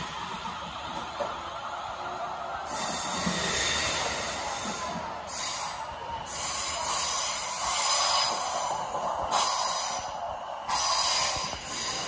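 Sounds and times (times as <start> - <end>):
train compressed air hissing: 2.7 - 12.0.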